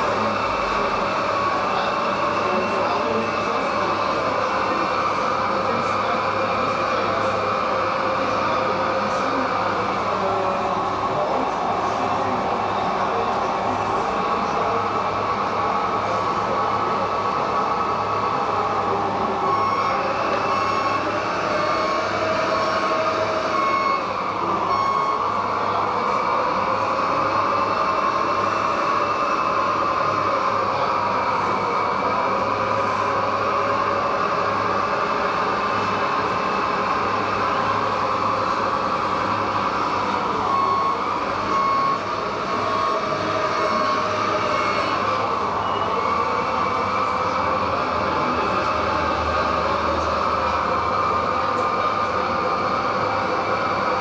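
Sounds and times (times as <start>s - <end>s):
electric motors and hydraulic whine: 0.0s - 54.0s
warning beeper beeping: 19.4s - 26.2s, 39.5s - 46.8s.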